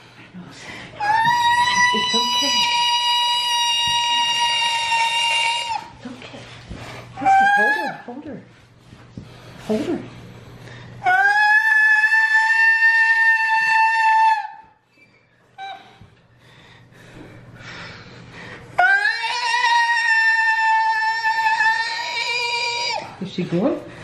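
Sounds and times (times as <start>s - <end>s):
cat yowling: 18.8s - 23.1s.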